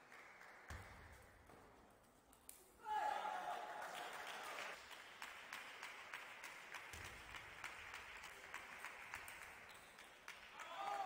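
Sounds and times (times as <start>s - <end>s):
faint applause from small crowd: 0.0s - 1.0s, 3.1s - 11.0s.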